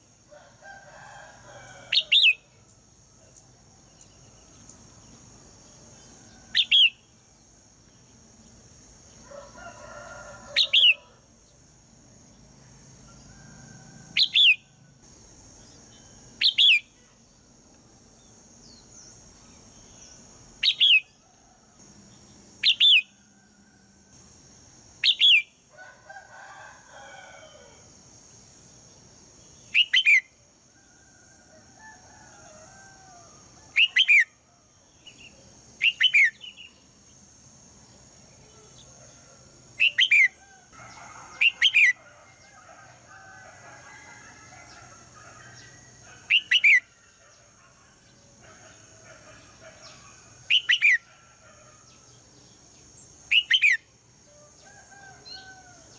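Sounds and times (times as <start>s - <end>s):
fainter lower bird calls: 1.5s - 4.8s, 5.9s - 7.1s, 14.2s - 14.8s, 15.6s - 17.2s, 18.2s - 21.5s, 22.2s - 23.5s, 25.0s - 25.5s, 29.5s - 31.2s, 33.7s - 34.3s, 38.4s - 42.1s, 44.1s - 47.9s, 48.5s - 52.1s, 53.3s - 53.9s
bird sharp downward calls: 22.6s - 23.2s, 25.0s - 25.5s, 29.7s - 30.3s, 33.8s - 34.3s, 46.3s - 46.9s.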